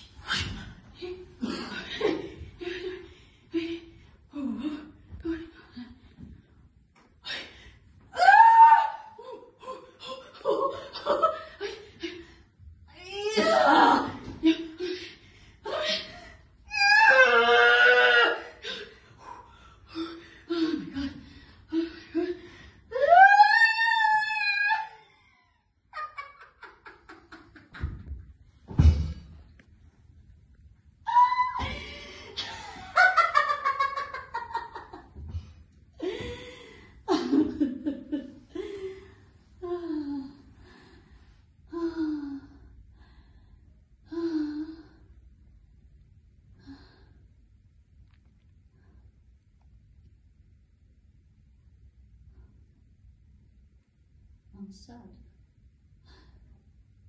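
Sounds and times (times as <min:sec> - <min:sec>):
woman sobbing: 0:08.2 - 0:12.2
woman wailing: 0:13.0 - 0:14.2, 0:16.7 - 0:18.5, 0:23.0 - 0:25.0, 0:31.1 - 0:31.9
woman's wordless cries: 0:15.6 - 0:19.0, 0:19.9 - 0:26.3, 0:31.1 - 0:33.8.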